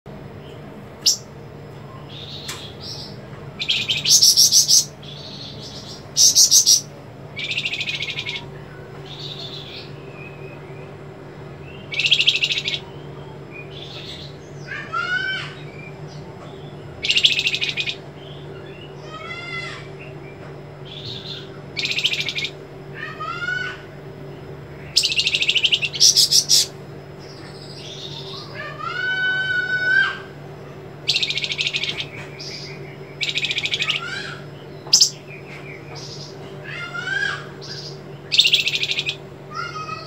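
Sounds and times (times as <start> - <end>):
bird buzzing trills: 0.1 - 40.0.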